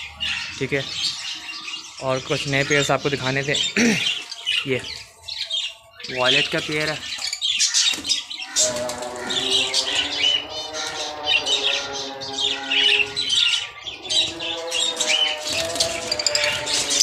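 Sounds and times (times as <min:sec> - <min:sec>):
cage birds chirping and squawking: 0:00.0 - 0:17.0
music with long held notes: 0:08.6 - 0:17.0.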